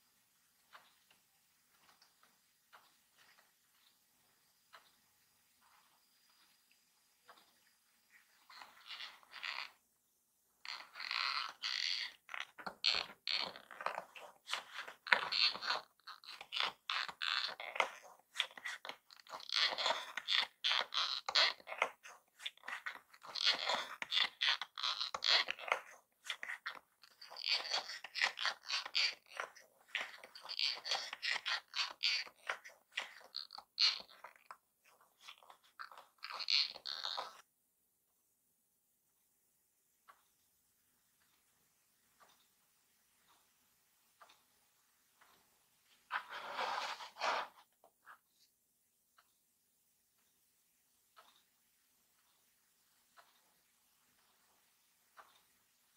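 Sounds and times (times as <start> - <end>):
paper toy gears scraping and crackling: 10.7 - 34.5.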